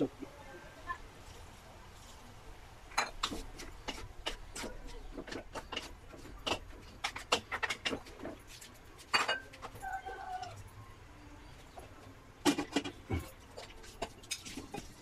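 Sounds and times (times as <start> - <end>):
spatulas clacking on metal wok: 3.0 - 8.2.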